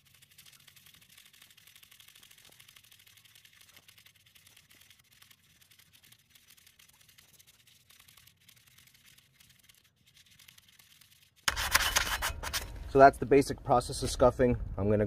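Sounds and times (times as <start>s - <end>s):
sandpaper rasping on metal: 8.0s - 12.7s.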